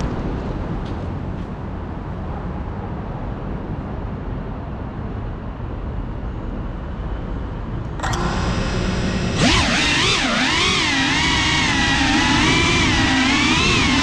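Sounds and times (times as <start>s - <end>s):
quadcopter motors whining: 8.0s - 14.0s.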